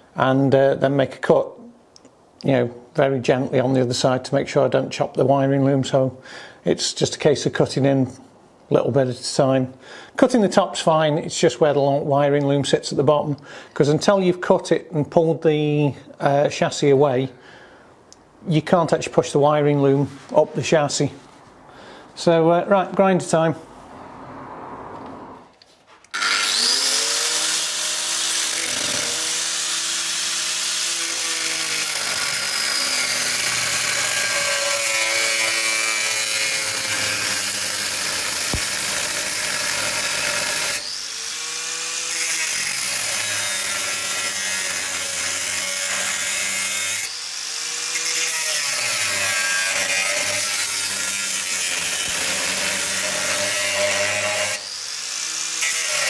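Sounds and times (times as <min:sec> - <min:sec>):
angle grinder cutting steel: 0:26.1 - 0:56.0.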